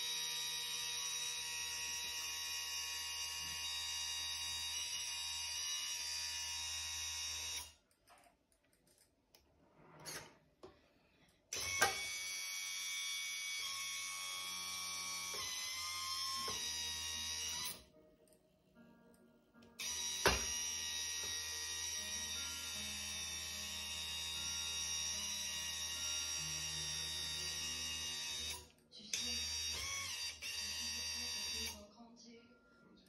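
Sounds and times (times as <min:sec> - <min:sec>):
electric hydraulic pump whine: 0:11.5 - 0:17.8.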